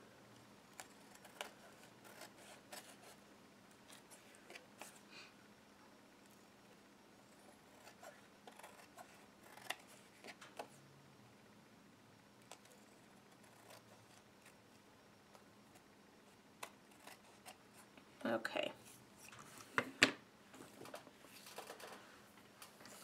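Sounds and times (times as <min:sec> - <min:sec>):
scissors snipping paper: 0:00.7 - 0:03.2.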